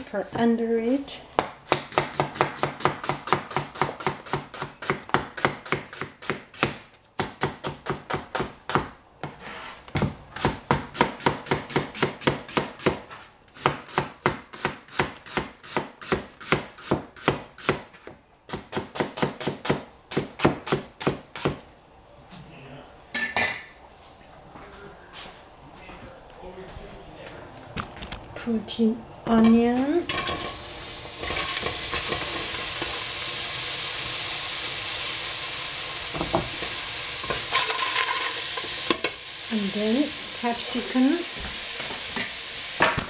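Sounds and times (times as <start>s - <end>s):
cleaver chopping onion on board: 1.4s - 9.3s, 10.0s - 13.0s, 13.6s - 21.6s.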